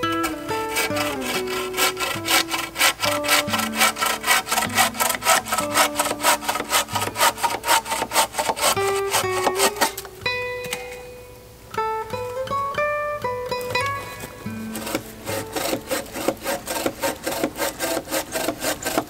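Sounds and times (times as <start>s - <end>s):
hand saw cutting wood: 0.0s - 10.1s, 13.8s - 19.0s
background music: 0.0s - 17.6s.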